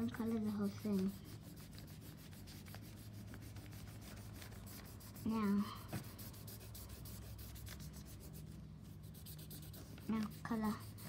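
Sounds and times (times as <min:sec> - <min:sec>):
marker scratching on paper: 0:00.0 - 0:11.0.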